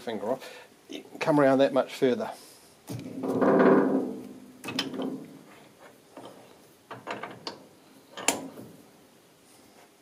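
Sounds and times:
metal clicks and clunks: 2.9 - 5.5, 6.1 - 8.8.

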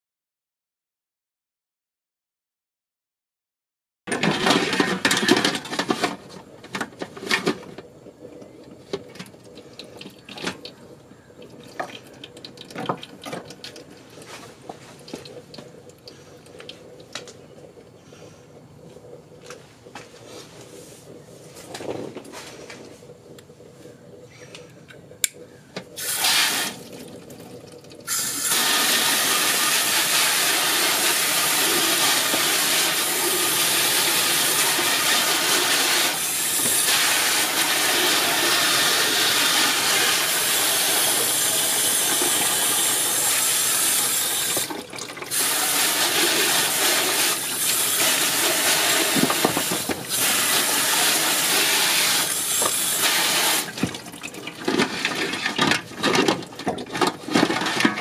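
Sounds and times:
hose spraying water on metal: 26.0 - 26.9, 28.1 - 53.9.

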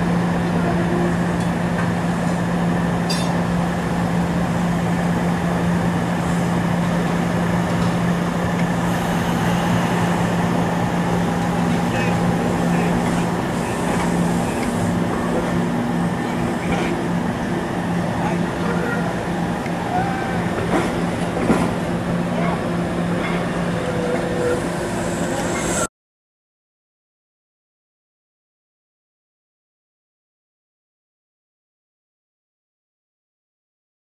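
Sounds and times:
street noise: 0.0 - 25.9
streetcar electrical hum: 0.0 - 25.9.

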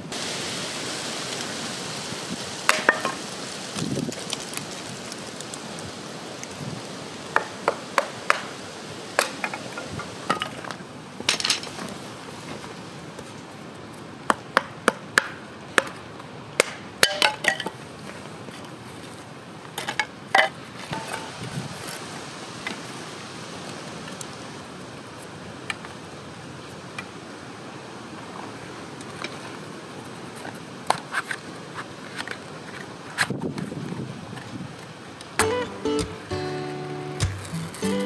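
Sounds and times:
sticks clacking in metal fire pit: 2.7 - 4.7, 7.4 - 8.6, 9.2 - 11.9, 16.6 - 17.8, 37.2 - 38.0.

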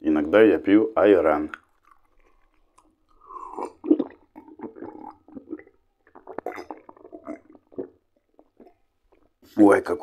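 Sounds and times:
man gulping a drink: 1.4 - 9.4.

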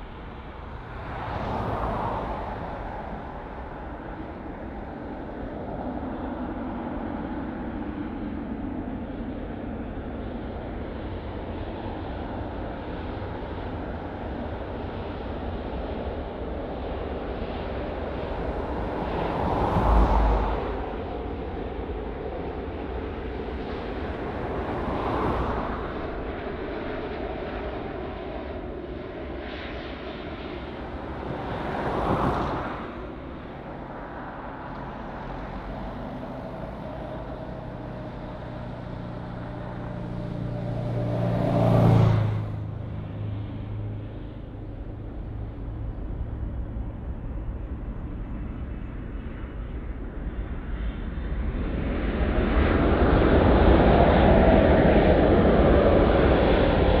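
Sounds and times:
jet airliner engines droning: 0.0 - 57.0.

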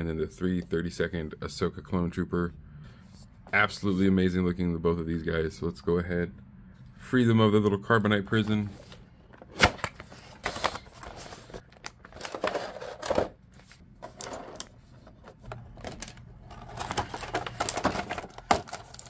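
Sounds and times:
plastic packaging crinkling: 16.0 - 19.0.

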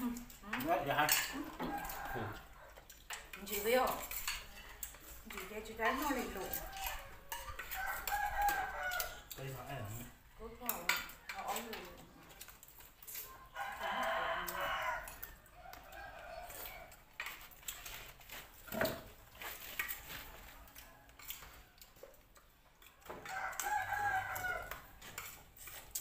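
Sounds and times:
spoons clinking on plates: 0.3 - 9.5
rooster crowing: 1.4 - 2.7, 6.1 - 9.4, 13.2 - 17.0, 23.1 - 25.1.

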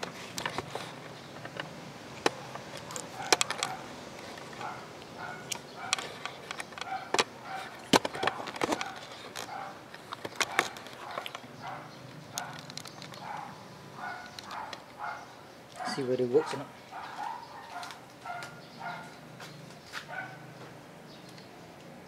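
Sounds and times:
handling clicks and taps: 0.0 - 15.0.

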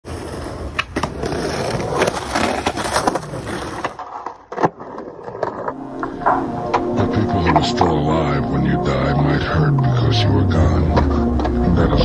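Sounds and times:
skateboard wheels rolling on concrete: 0.0 - 8.4
skateboard clacking on pavement: 0.1 - 5.6.

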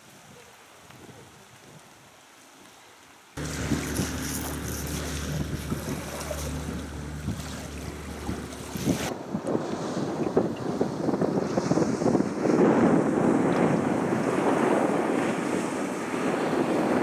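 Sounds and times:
water noise: 0.0 - 17.0
boat engine humming: 3.4 - 9.1
wind buffeting microphone: 3.4 - 17.0.

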